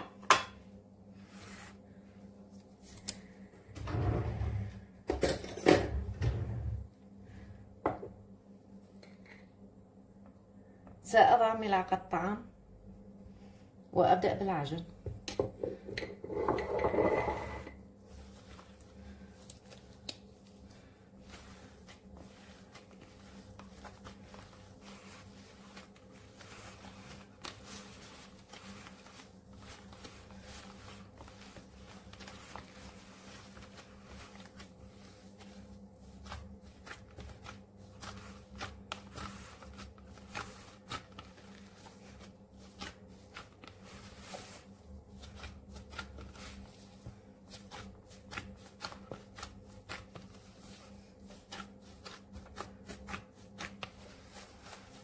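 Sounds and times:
low steady hum: 0:00.0 - 0:55.0
hand kneading soft dough: 0:00.6 - 0:05.0, 0:17.0 - 0:55.0.

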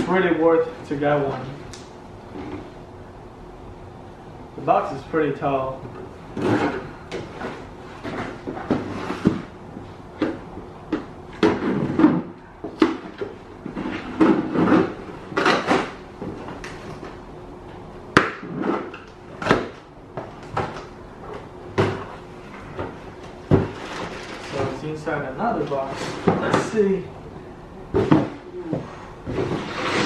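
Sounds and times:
cardboard and tape rustling: 0:18.4 - 0:27.0, 0:27.9 - 0:30.0.

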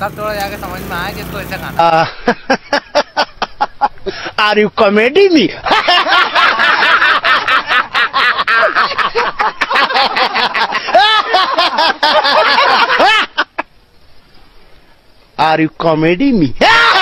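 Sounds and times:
men laughing loudly: 0:01.6 - 0:04.4, 0:05.5 - 0:13.8, 0:16.6 - 0:17.0.

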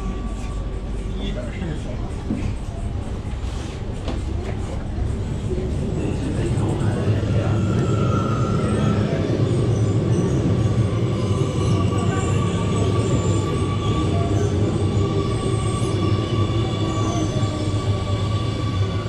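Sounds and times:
metro train rumble: 0:00.0 - 0:19.0.

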